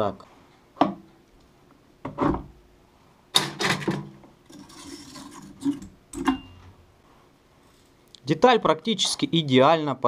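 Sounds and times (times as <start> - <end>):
metal scraping: 3.7 - 6.6.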